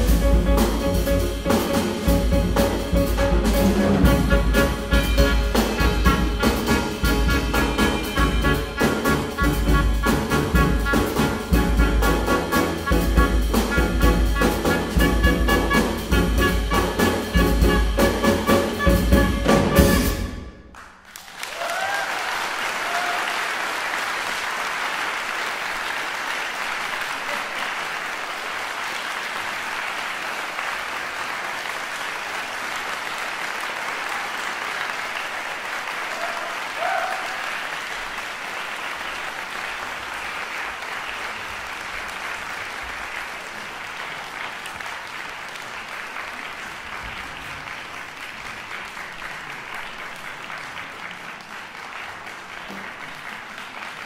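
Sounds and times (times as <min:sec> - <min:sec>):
jazz quartet final chord: 0:00.0 - 0:20.4
audience applause: 0:20.7 - 0:54.0.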